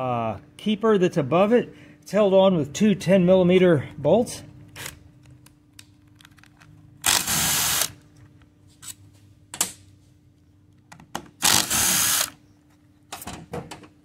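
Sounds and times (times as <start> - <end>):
cordless power driver spinning: 7.0 - 8.0, 11.4 - 12.4.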